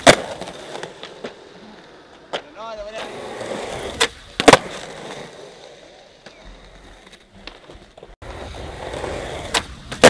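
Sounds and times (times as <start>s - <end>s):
skateboard wheels rolling on concrete: 0.0s - 10.0s
skateboard clack on concrete: 2.2s - 3.1s, 4.0s - 4.9s.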